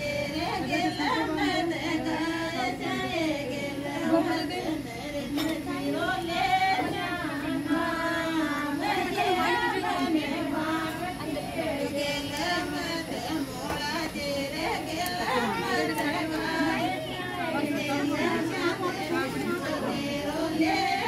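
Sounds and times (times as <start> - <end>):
women singing folk song together: 0.0 - 21.0.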